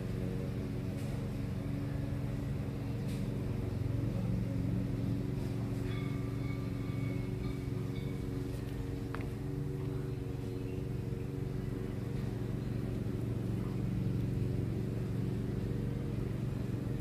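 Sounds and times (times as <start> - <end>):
engine humming: 0.0 - 17.0
faint high steady tone: 5.6 - 12.9.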